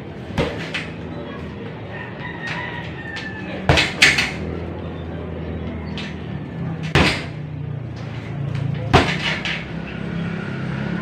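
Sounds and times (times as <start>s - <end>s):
rooster crowing: 1.9s - 3.8s.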